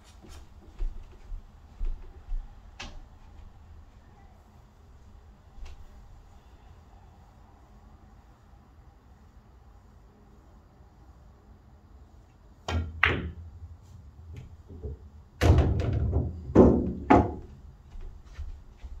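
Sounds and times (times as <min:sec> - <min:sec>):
pool balls rolling: 0:14.3 - 0:17.6
pool balls clacking: 0:14.4 - 0:17.6
balls knocking hard: 0:14.7 - 0:17.5.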